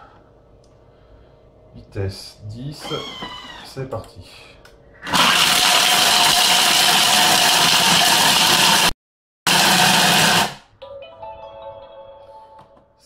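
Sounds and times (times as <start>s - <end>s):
food processor blades whirring: 5.0s - 8.9s, 9.5s - 10.6s
faint music with steady tones: 10.8s - 13.0s.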